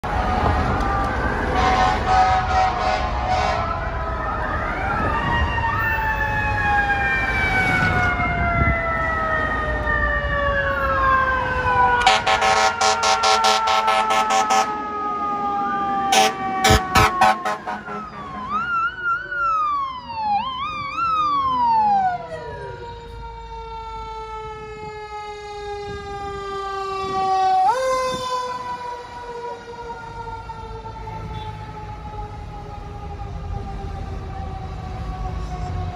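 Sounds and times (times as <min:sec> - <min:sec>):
electronic siren wail: 0:00.0 - 0:35.9
rapid horn blasts: 0:01.6 - 0:03.7, 0:12.0 - 0:14.7, 0:16.1 - 0:18.6
siren fast yelp: 0:03.4 - 0:24.8.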